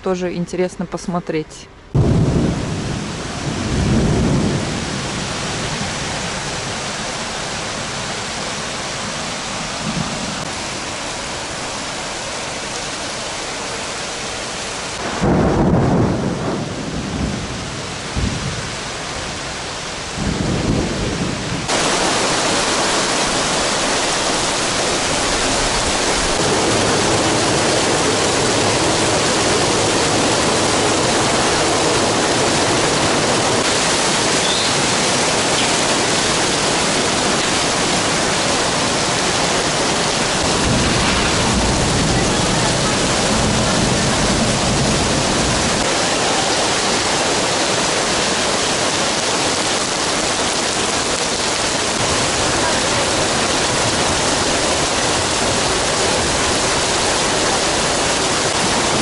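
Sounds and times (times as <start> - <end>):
low rolls of thunder: 1.9 - 6.8, 15.0 - 19.4, 20.1 - 33.4, 35.8 - 49.2
downpour on wet street: 1.9 - 59.0
heavy rain: 1.9 - 59.0.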